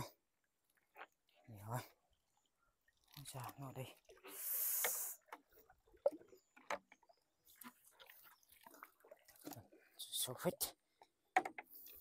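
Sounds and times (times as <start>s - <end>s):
water dripping: 0.0s - 10.4s
small knocks: 11.3s - 11.8s.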